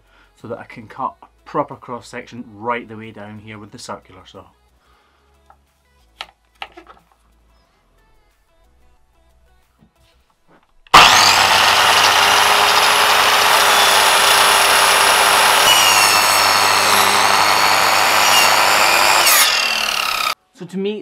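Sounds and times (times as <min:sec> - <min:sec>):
mitre saw whining: 0:10.9 - 0:20.4.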